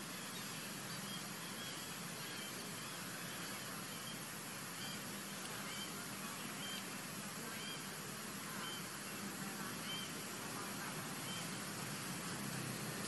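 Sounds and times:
steady background hiss: 0:00.0 - 0:13.0
high chirping animal calls: 0:00.2 - 0:11.6.

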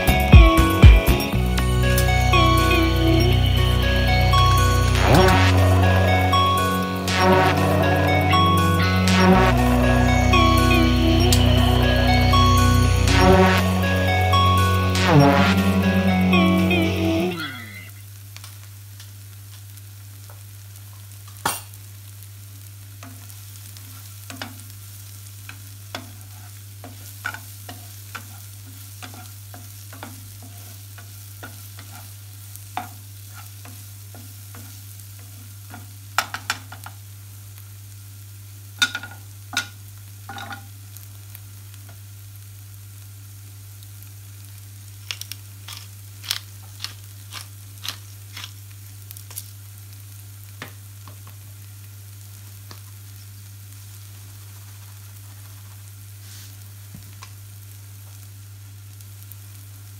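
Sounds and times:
onion and tomato sizzling: 0:00.0 - 0:59.9
spatula scraping and tapping pan: 0:25.9 - 0:36.9.

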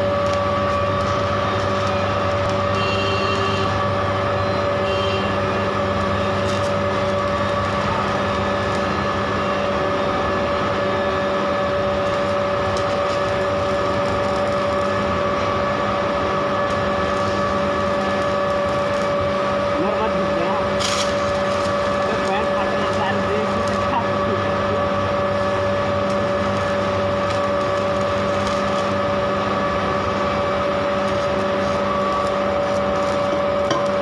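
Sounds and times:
arc welding crackling sizzle: 0:00.0 - 0:34.0
steady electrical hum: 0:00.0 - 0:34.0.

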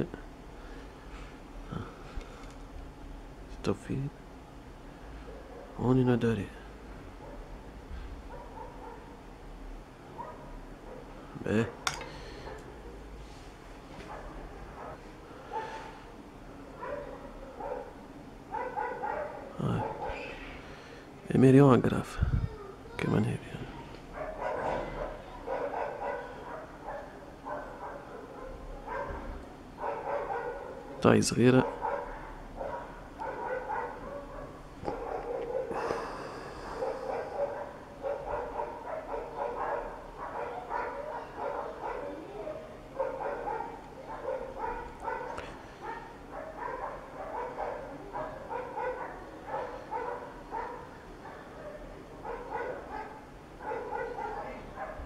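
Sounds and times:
dog barking: 0:08.3 - 0:09.2, 0:10.2 - 0:11.1, 0:14.0 - 0:16.0, 0:16.8 - 0:20.3, 0:24.2 - 0:31.0, 0:31.6 - 0:35.8, 0:36.8 - 0:55.0.

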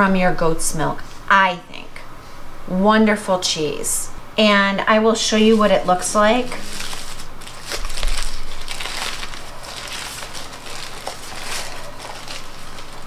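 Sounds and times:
plastic wrapping crinkling: 0:05.3 - 0:13.0.

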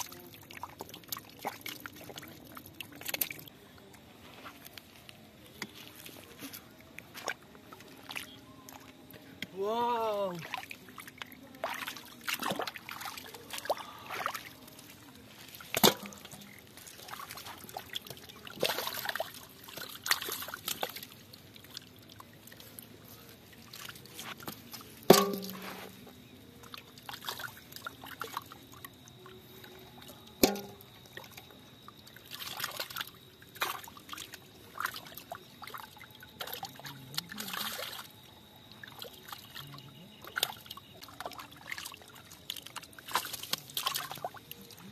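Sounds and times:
hands splashing in muddy water: 0:09.6 - 0:26.1, 0:38.9 - 0:44.9
fish knocking into metal bowl: 0:25.1 - 0:25.7, 0:30.4 - 0:30.8.

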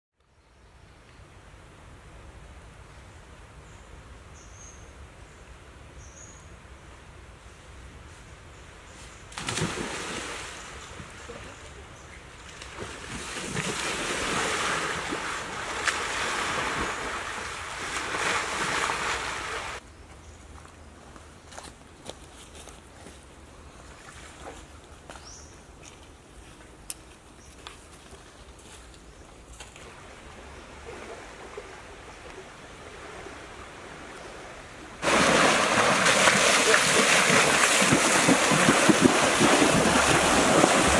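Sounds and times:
loud heavy splashing: 0:09.3 - 0:10.7, 0:35.0 - 0:40.9
river water rushing: 0:13.6 - 0:19.8, 0:29.9 - 0:40.9
person wading through water: 0:35.0 - 0:40.9.

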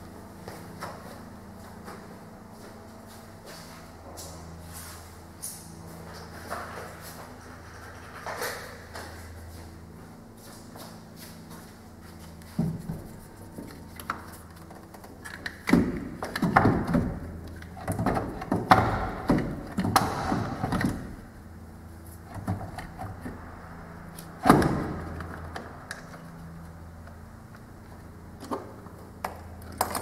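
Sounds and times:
knocks and clunks of car battery: 0:15.6 - 0:21.2.

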